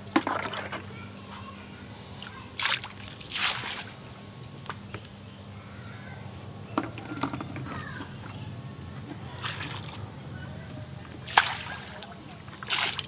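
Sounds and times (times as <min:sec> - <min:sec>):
steady low hum: 0:00.0 - 0:13.0
liquid splashing into pond: 0:00.1 - 0:00.8, 0:02.6 - 0:03.9, 0:09.3 - 0:10.0, 0:11.2 - 0:13.0.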